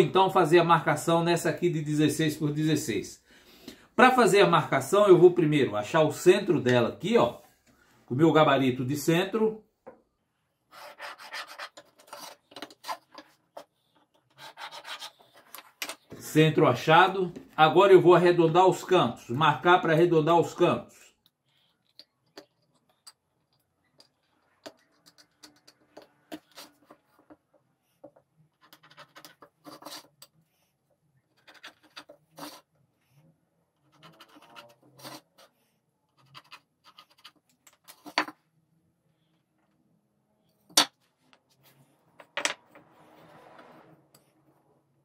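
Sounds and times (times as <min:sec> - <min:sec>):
scratchy marking strokes on board: 0:10.7 - 0:15.6.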